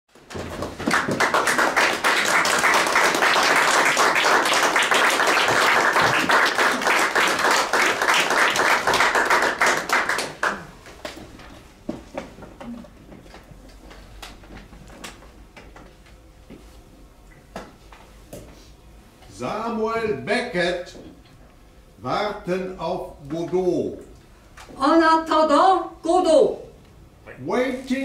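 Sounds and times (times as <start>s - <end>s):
audience applauding: 0.2s - 10.8s.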